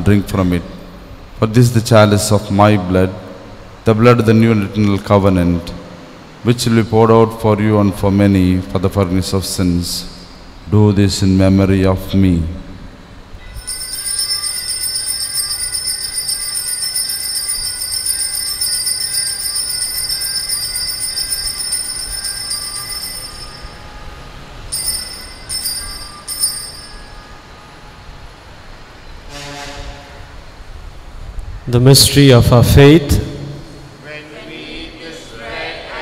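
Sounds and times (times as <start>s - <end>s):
altar bells jingling: 13.5s - 27.6s.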